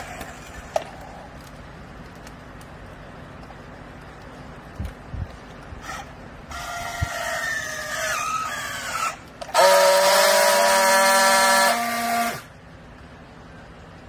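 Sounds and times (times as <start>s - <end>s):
steady welding buzz: 0.0s - 13.6s
strapping tool motor whining: 5.8s - 12.5s.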